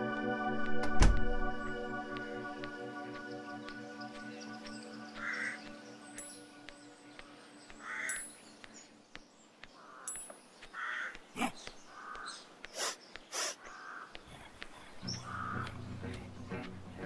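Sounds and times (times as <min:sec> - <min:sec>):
crows cawing: 0:05.1 - 0:05.7, 0:07.7 - 0:08.3, 0:09.6 - 0:14.3, 0:15.1 - 0:15.8.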